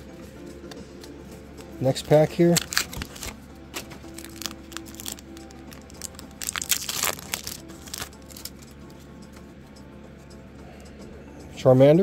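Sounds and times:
foil wrapper tearing and crinkling: 1.9s - 8.5s.

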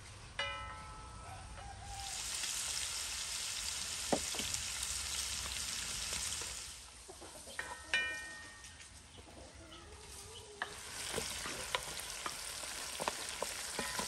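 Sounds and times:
fat sizzling in hot pan: 1.9s - 6.9s, 10.6s - 14.0s.

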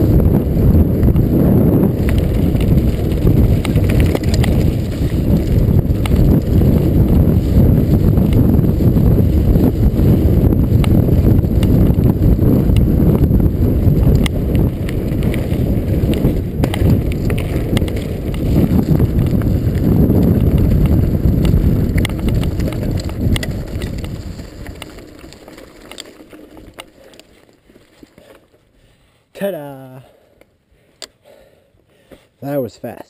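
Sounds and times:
wind rush on microphone: 0.0s - 25.5s
bike tyre rumble: 0.0s - 29.2s
gravel and drivetrain clicks: 0.0s - 29.2s.

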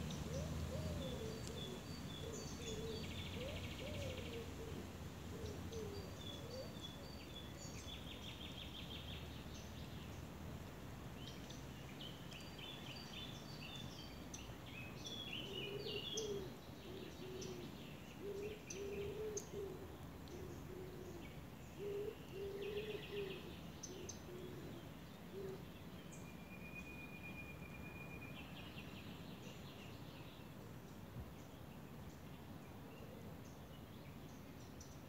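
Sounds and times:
small birds chirping and trilling: 0.0s - 4.6s.

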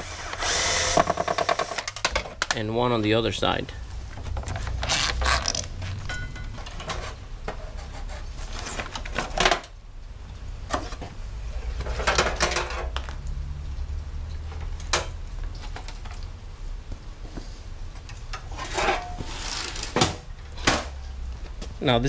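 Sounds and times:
air conditioner parts rattling and scraping: 0.8s - 9.8s, 10.6s - 13.0s, 17.2s - 21.9s.

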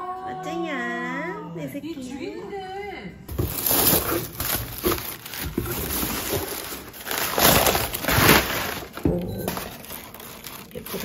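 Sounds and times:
cardboard box being opened: 3.3s - 11.0s
paper packing crinkling: 3.3s - 11.0s.

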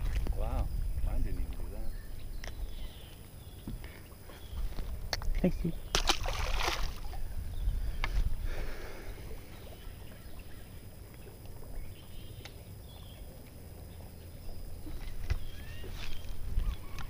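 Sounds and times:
boat engine rumble: 0.0s - 17.0s
faint bird chirps: 0.4s - 6.1s, 7.0s - 13.3s, 13.9s - 17.0s.

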